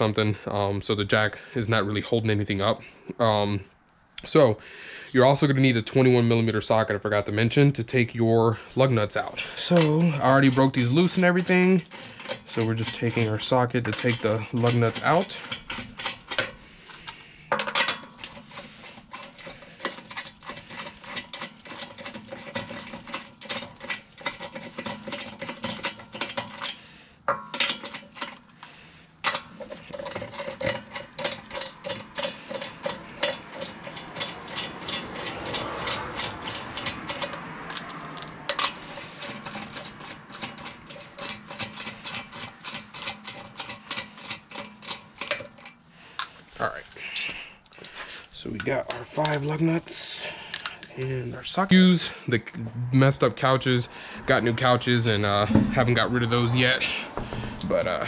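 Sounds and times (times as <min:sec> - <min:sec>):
hand ratchet clicking: 0:09.6 - 0:46.4.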